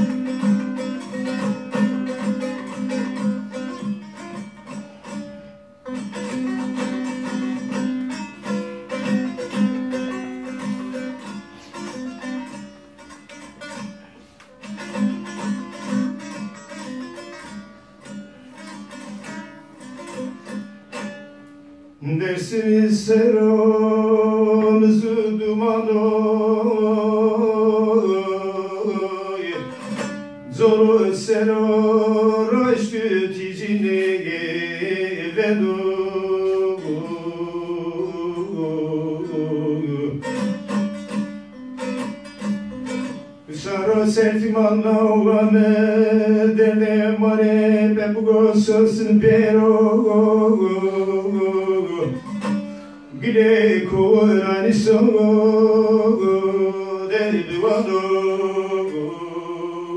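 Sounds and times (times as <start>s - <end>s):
saz plucked notes: 0.0s - 22.1s, 25.2s - 33.0s, 36.3s - 46.5s
man singing long held notes: 22.0s - 29.8s, 30.5s - 40.3s, 43.5s - 52.5s, 53.1s - 59.9s.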